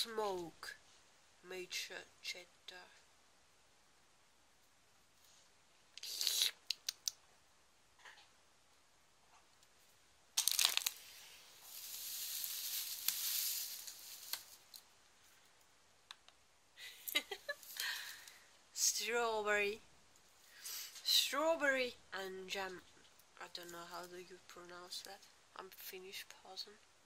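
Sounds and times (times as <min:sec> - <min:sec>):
rustling straw in wicker hamper: 0:10.5 - 0:14.8.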